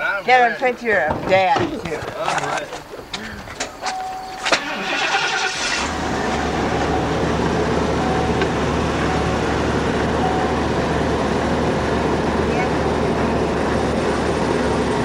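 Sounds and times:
vehicle engine starting and idling: 3.8s - 15.0s.

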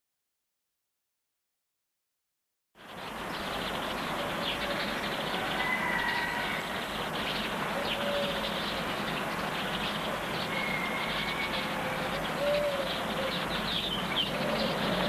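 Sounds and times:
birds calling: 2.8s - 15.0s.

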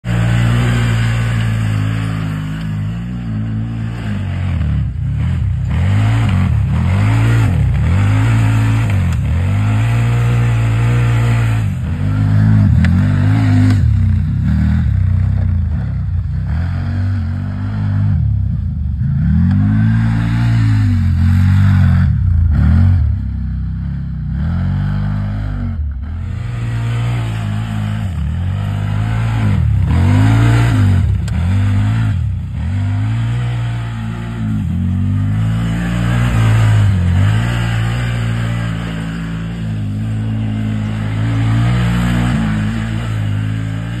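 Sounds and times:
engine revving hard: 0.0s - 15.0s, 24.3s - 44.0s.

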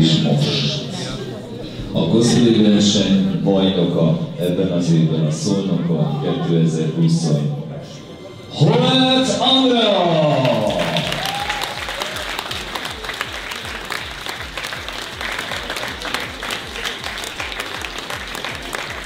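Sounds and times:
audience applauding: 10.2s - 19.0s
background music with low beat: 11.4s - 19.0s.

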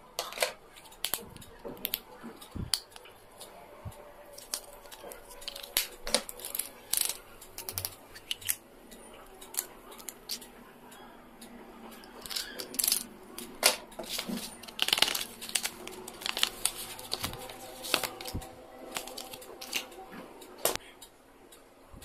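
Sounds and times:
plastic items clicking and tapping: 0.2s - 3.5s, 4.3s - 8.6s, 12.0s - 19.9s
plastic packaging crinkling: 4.3s - 8.6s, 12.1s - 19.9s.

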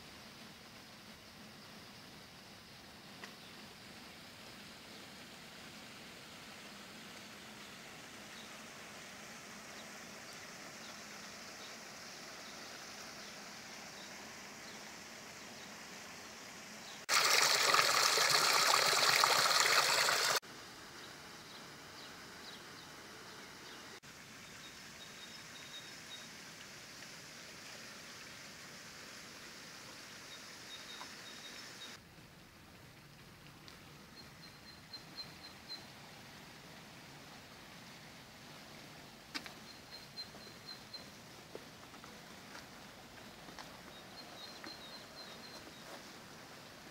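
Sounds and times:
faint outdoor hiss: 0.0s - 46.9s
river water rushing over rocks: 17.1s - 20.4s.

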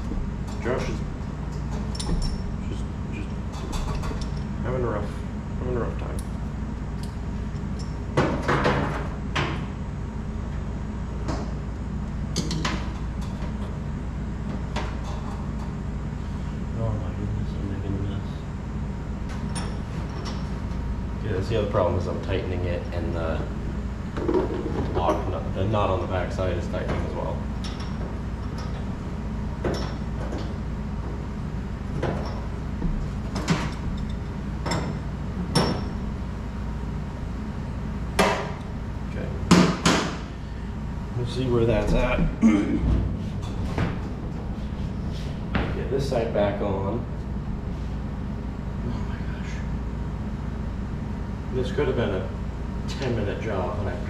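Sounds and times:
steady low hum: 0.0s - 54.0s
tools clinking against sink: 1.7s - 2.4s.

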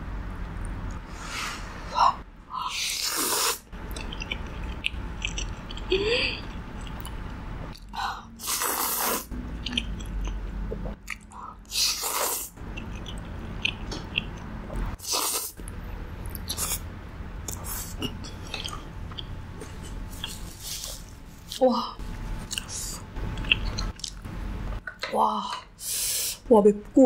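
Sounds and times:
person chewing food: 2.8s - 16.8s, 17.4s - 24.3s.

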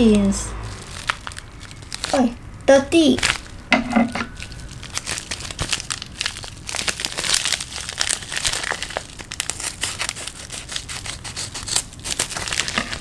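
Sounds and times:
plastic mailers crinkling: 0.7s - 2.4s, 3.0s - 3.6s, 4.2s - 13.0s.

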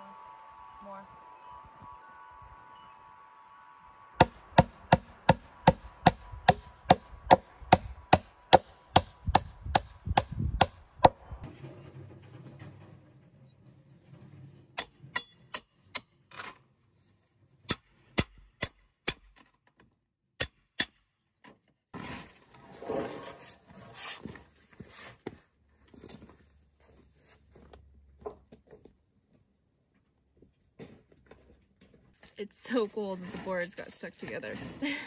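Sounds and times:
hammer striking metal pry bar: 4.2s - 11.2s, 14.8s - 16.2s, 17.7s - 19.4s, 20.4s - 21.1s
wooden board scraping: 22.0s - 25.3s.

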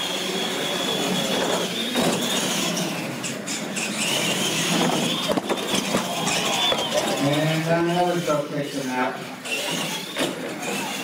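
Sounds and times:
toy truck motors whining: 0.0s - 11.0s
tyre noise on concrete: 1.2s - 7.8s.

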